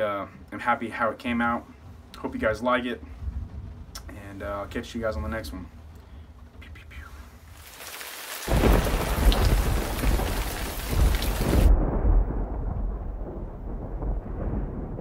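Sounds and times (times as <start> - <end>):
thunder rumble: 0.0 - 7.5, 8.5 - 15.0
rain hiss: 1.4 - 11.7.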